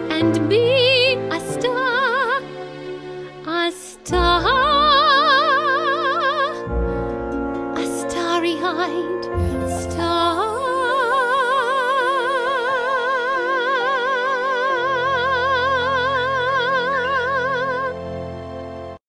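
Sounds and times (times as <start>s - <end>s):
sustained backing chords: 0.0s - 19.0s.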